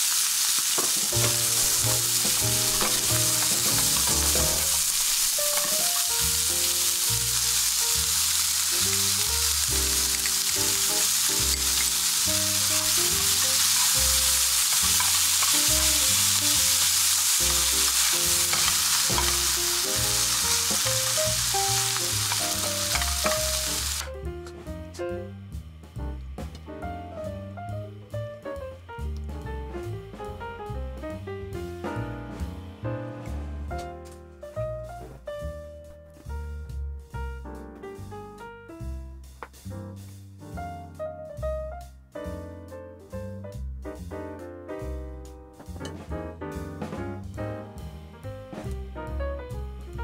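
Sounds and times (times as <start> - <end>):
food sizzling in a frying pan: 0.0 - 24.1
chopsticks stirring: 0.6 - 6.1, 10.0 - 24.0.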